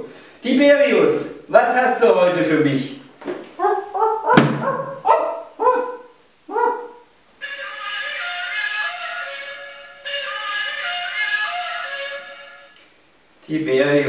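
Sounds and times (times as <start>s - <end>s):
short barking calls: 3.6s - 7.1s
sharp knock: 4.3s - 4.7s
music playing: 7.4s - 12.8s.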